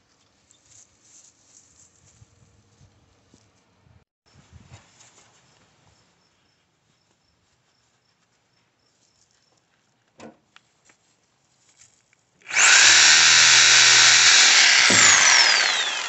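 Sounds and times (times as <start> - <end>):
reciprocating saw cutting wood: 12.5 - 16.0.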